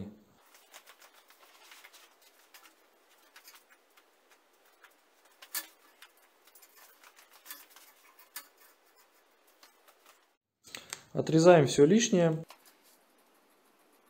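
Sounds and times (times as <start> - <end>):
mesh net rustling: 0.4 - 10.4.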